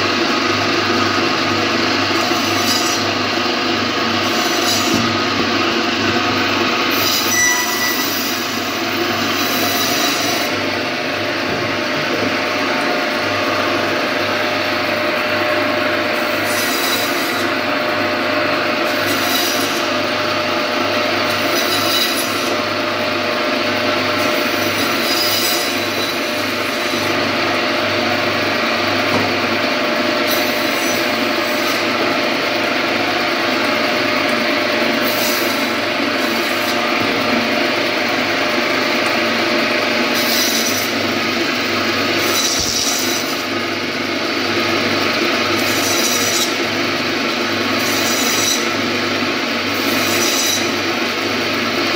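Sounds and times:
band saw running: 0.0s - 51.9s
saw blade rasping through fish: 2.1s - 3.2s, 4.2s - 5.1s, 6.9s - 10.6s, 16.0s - 17.9s, 18.8s - 22.7s, 24.1s - 27.2s, 30.1s - 32.0s, 34.7s - 37.5s, 40.0s - 41.4s, 42.0s - 43.6s, 45.4s - 49.1s, 49.7s - 51.2s.

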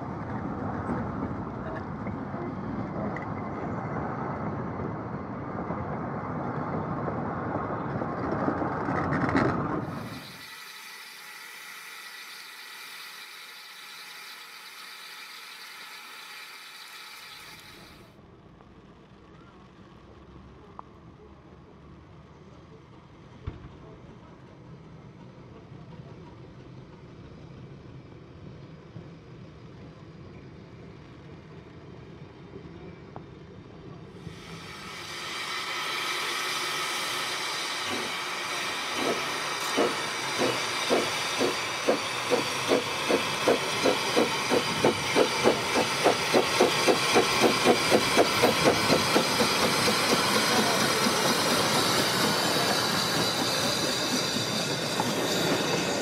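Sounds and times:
steam locomotive exhaust beats: 9.8s - 18.0s, 34.2s - 56.0s
steam hissing from locomotive: 9.8s - 18.1s, 34.2s - 56.0s.

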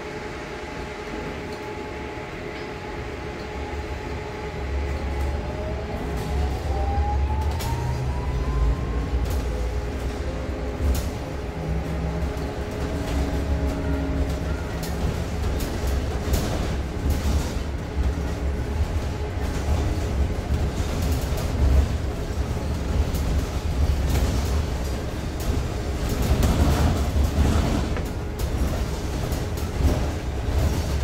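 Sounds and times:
low rumble of bus on road: 0.0s - 31.0s
rattles and knocks of bus body: 9.2s - 31.0s.

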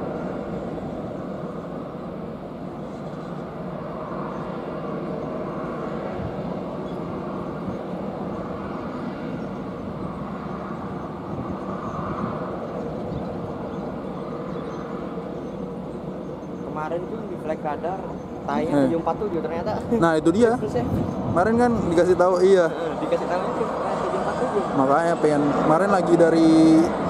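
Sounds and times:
jet airliner engines rumbling: 0.0s - 27.0s.

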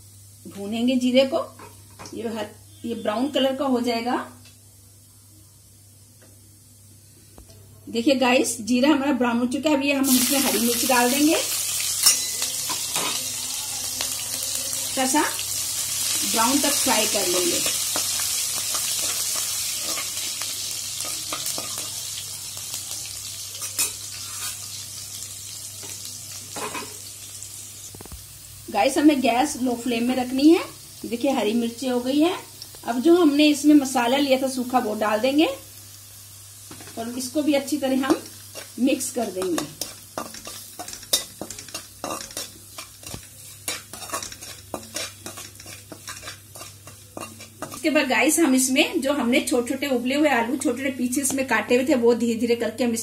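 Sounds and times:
chillies sizzling in hot oil: 0.0s - 7.3s, 7.9s - 53.0s
metal spatula scraping a pan: 15.7s - 22.1s, 23.5s - 24.8s, 38.1s - 47.9s.

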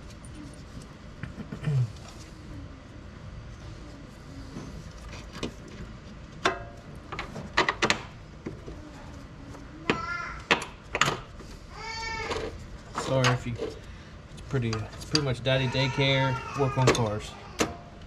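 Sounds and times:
child calling out: 8.8s - 10.5s, 11.8s - 12.5s.

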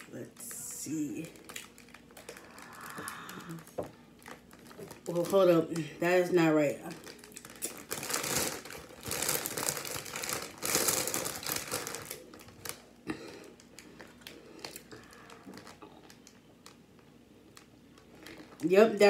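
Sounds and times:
chip bag crinkling: 0.3s - 19.0s
chips shifting in bag: 6.7s - 16.8s, 17.4s - 18.7s.

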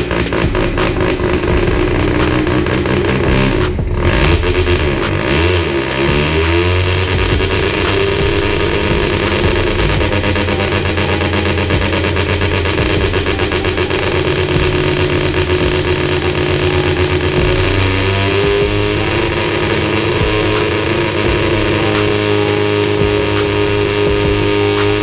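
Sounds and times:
rotary engine running: 0.0s - 25.0s.

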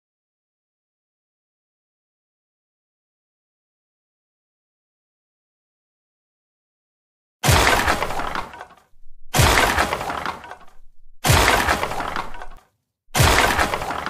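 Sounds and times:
glass shattering crash: 7.4s - 12.6s, 13.2s - 14.0s.

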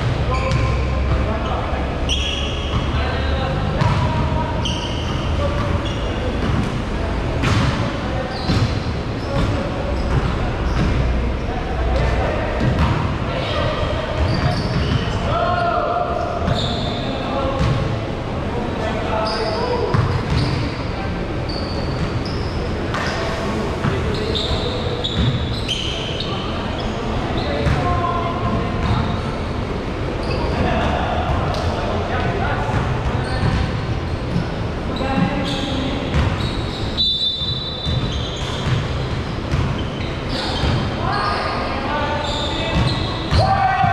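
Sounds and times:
basketballs bouncing on wood floor: 0.0s - 1.3s, 3.8s - 4.4s, 8.5s - 11.1s, 12.6s - 13.1s, 19.9s - 20.6s, 37.9s - 39.8s
sneakers squeaking: 0.0s - 18.0s, 18.8s - 43.9s.

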